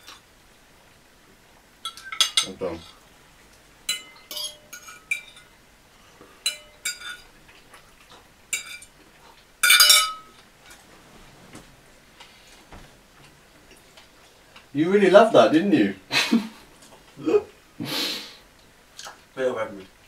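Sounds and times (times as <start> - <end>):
fork clinking on ceramic plate: 1.8 - 2.6, 3.9 - 5.5, 6.4 - 7.3, 8.5 - 8.9, 9.6 - 10.3.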